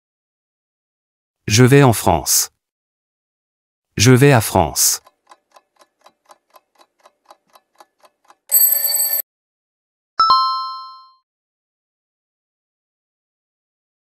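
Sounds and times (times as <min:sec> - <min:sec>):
clock ticking: 0:04.8 - 0:09.2
alarm clock bell ringing: 0:08.5 - 0:09.2
bright chime: 0:08.5 - 0:09.2.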